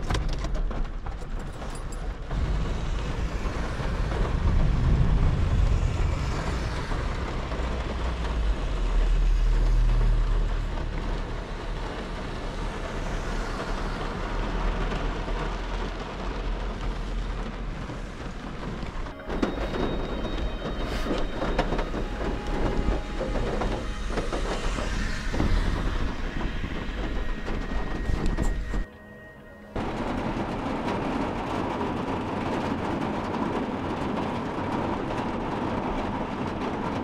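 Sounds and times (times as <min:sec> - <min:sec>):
van engine and road rumble: 0:00.0 - 0:19.2.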